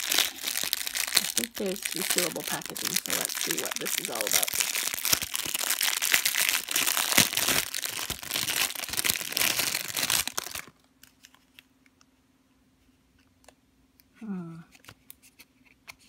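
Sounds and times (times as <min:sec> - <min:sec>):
plastic bag crinkling: 0:00.0 - 0:11.6.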